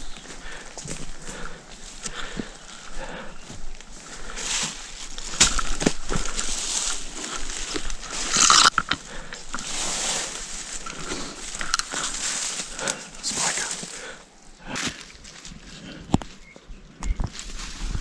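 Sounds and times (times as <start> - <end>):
footsteps on leaf litter: 3.4 - 8.7, 9.4 - 14.1
branches brushing past: 4.4 - 14.0.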